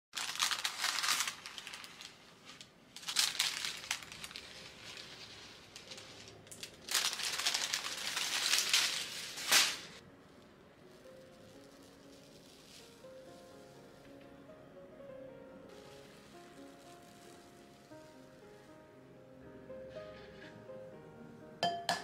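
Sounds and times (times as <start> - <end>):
crinkling and crackling: 0.1 - 10.0, 10.9 - 14.4, 15.7 - 19.0.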